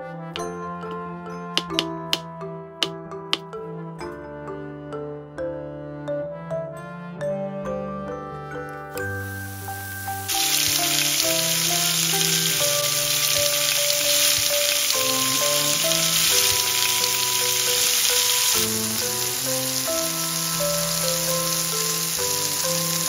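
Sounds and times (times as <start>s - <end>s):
background music: 0.0s - 23.0s
chicken frying in hot oil: 9.1s - 23.0s.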